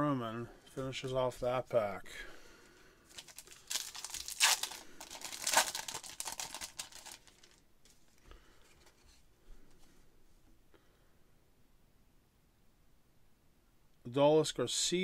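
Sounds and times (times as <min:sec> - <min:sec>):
wrapper tearing and crinkling: 0:03.1 - 0:07.6.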